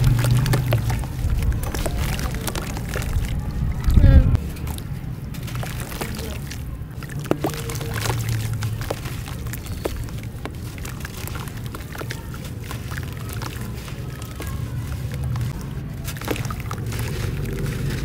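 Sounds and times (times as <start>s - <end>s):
crumbling grit crackling: 0.0s - 18.0s
grit pouring into water: 0.0s - 18.0s.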